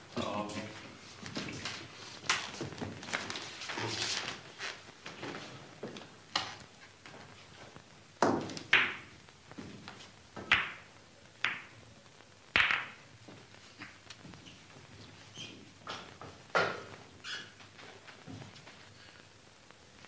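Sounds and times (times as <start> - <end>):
pool balls clacking: 5.8 - 11.8, 12.5 - 14.0, 15.8 - 17.2.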